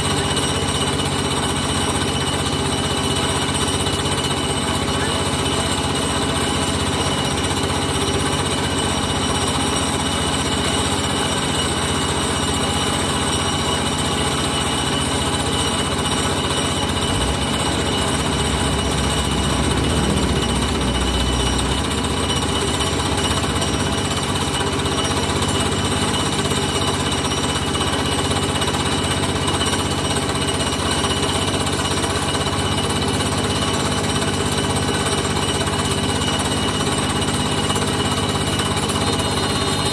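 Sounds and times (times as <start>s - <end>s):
loud machine running: 0.0s - 39.9s
deep rumble: 16.8s - 24.8s.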